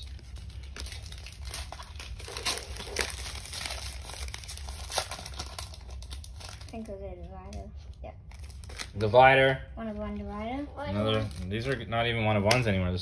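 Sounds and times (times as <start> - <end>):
foil wrapper crinkling: 0.0 - 7.6, 8.2 - 9.2, 10.9 - 11.9.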